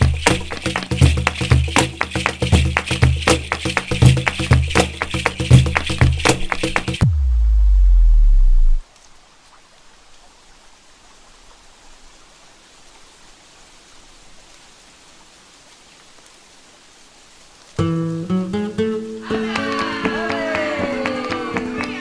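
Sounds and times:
soft outdoor ambience hiss: 0.0s - 22.0s
deep low music note: 7.0s - 8.8s
plucked guitar notes: 7.0s - 8.8s, 17.8s - 21.9s.

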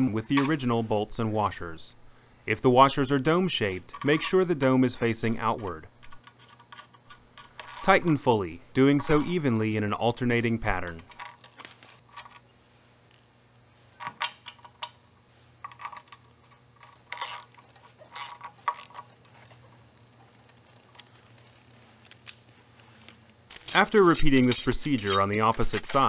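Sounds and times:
metallic clink: 11.2s - 12.4s, 13.1s - 13.6s
ratchet wrench clicking: 18.1s - 19.1s.

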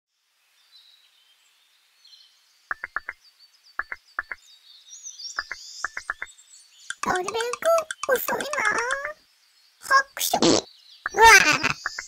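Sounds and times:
faint birds chirping: 0.2s - 12.0s.

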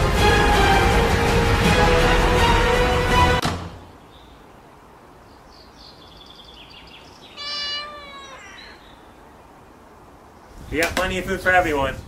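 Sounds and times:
cat meowing: 7.3s - 8.9s.

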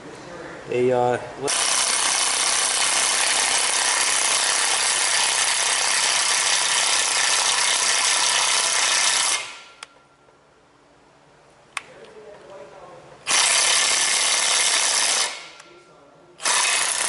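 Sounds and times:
impact wrench hammering: 1.5s - 9.9s, 13.3s - 15.7s, 16.4s - 17.0s.

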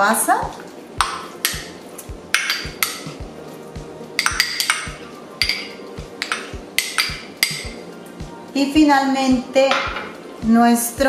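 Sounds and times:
background music with steady beat: 0.0s - 11.0s
spoon clinking on glass bowl: 4.2s - 7.8s.

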